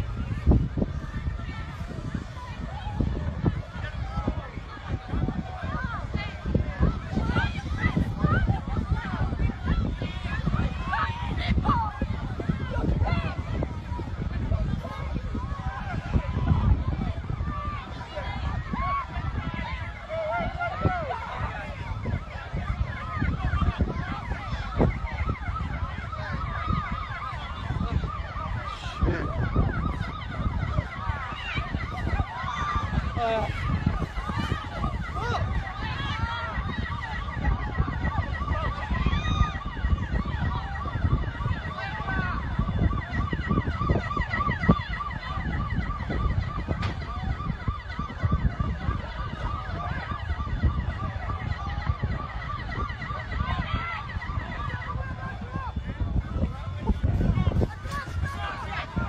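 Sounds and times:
steady low rumble: 0.0 - 36.6, 54.9 - 59.0
emergency sirens yelping: 0.0 - 59.0
heavy low rumble: 55.0 - 59.0.

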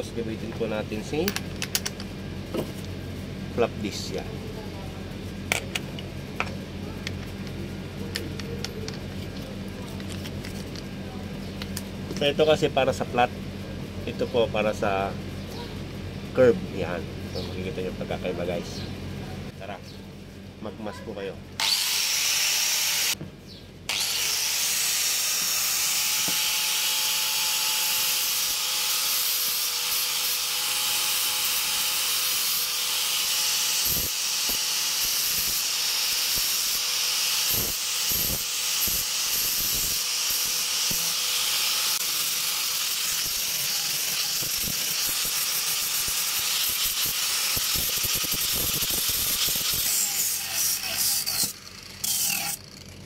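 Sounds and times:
angle grinder sanding wood: 23.9 - 52.6.

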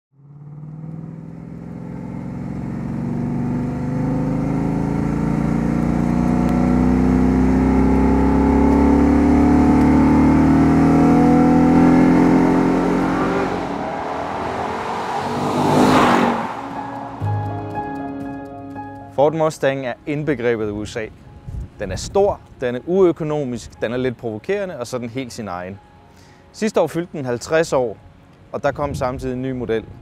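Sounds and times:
car engine passing by: 0.2 - 17.6.

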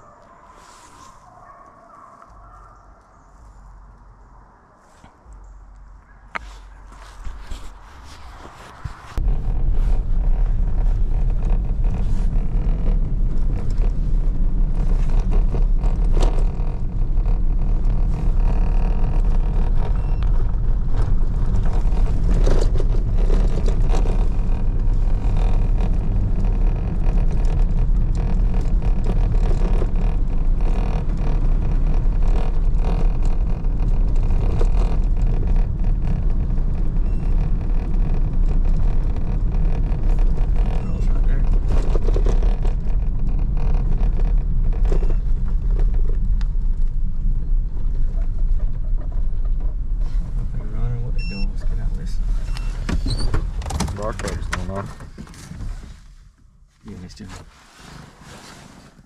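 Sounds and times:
vehicle engine and road rumble: 0.0 - 59.0
knocks and rattles: 9.2 - 50.6, 52.8 - 55.8.

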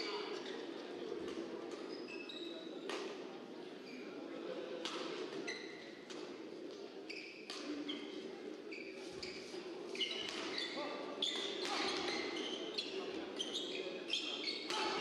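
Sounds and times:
shoes squeaking on court: 1.8 - 2.7, 7.1 - 8.1, 8.7 - 14.8.

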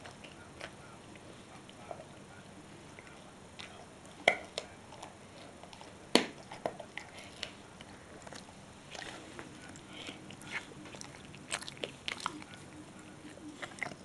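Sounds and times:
dog teeth cracking on a chew: 10.1 - 12.6.

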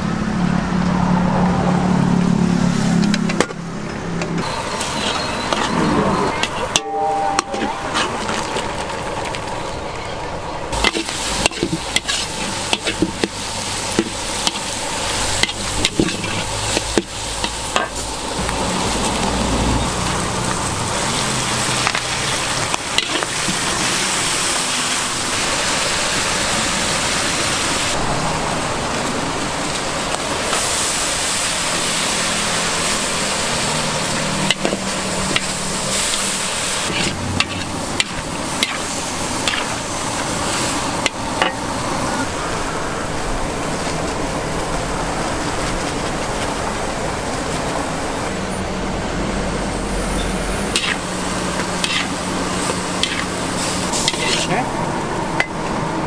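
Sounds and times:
food sizzling in a wok: 4.4 - 9.8, 10.7 - 56.0
metal spatula scraping a wok: 4.5 - 8.7, 10.8 - 18.2, 18.8 - 24.1, 33.9 - 41.6, 50.7 - 54.7.

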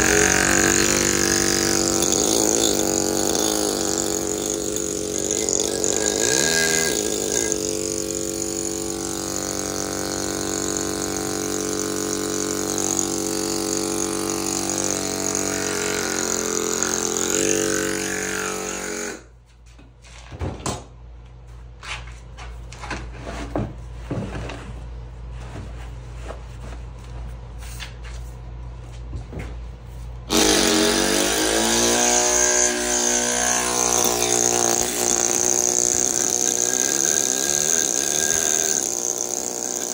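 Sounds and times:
pneumatic carving hammer buzzing: 0.0 - 19.3, 30.3 - 39.9.

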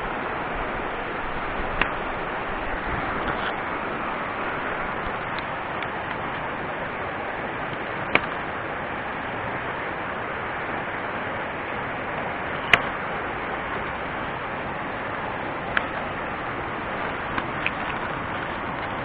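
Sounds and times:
mountain stream rushing: 0.0 - 19.0.

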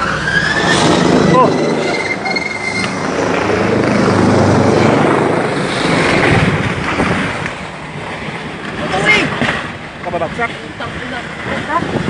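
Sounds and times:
helicopter rotor downwash: 0.0 - 6.9.

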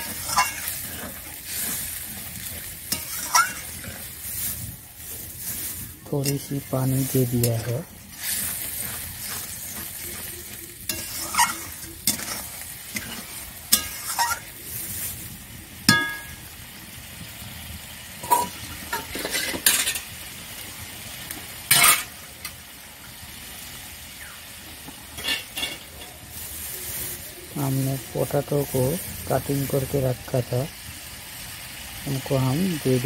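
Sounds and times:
metal spatula scraping pan: 0.0 - 15.2, 18.2 - 20.1, 21.7 - 22.2
spice paste sizzling in oil: 0.0 - 33.0.

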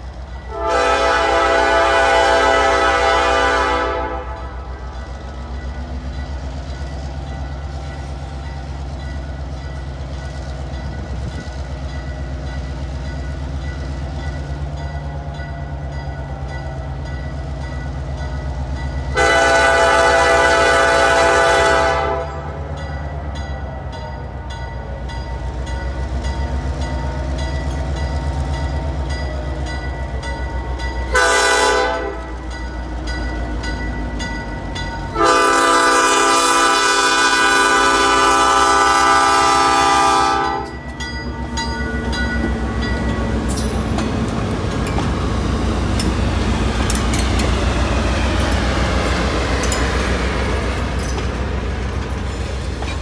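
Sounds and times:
diesel locomotive engine rumbling: 0.0 - 53.0
train air horn blast: 0.5 - 4.6, 19.2 - 22.6, 31.1 - 32.2, 35.2 - 40.8.

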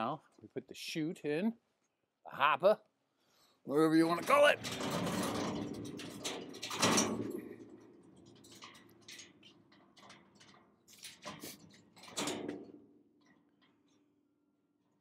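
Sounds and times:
metal hopper rolling on concrete: 4.0 - 13.9
metal frame rattling: 4.0 - 14.2
loud metal clunk: 4.6 - 9.4.

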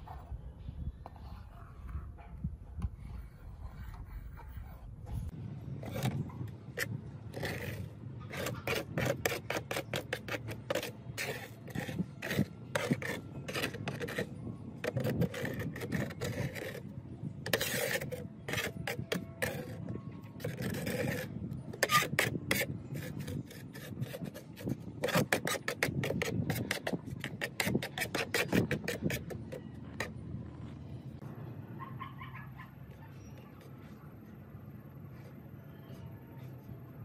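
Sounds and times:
abrasive scraping on hard surface: 2.9 - 30.8.

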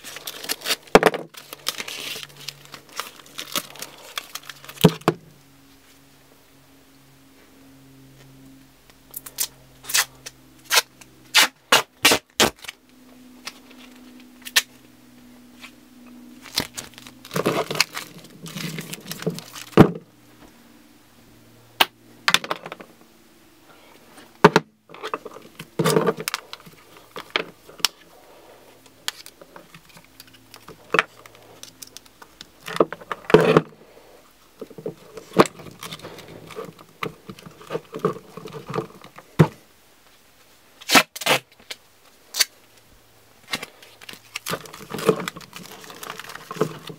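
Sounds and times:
rustling: 0.0 - 6.0, 15.5 - 20.6, 23.7 - 41.7, 43.4 - 46.9.

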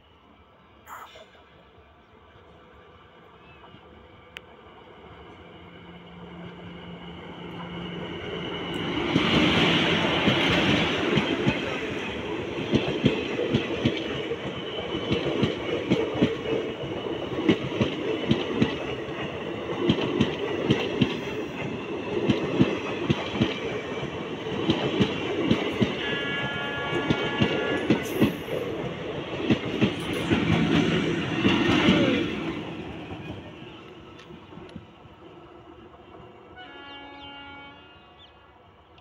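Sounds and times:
train rumbling past: 0.0 - 39.0
wheels clickety-clack over rail joints: 6.1 - 35.3.

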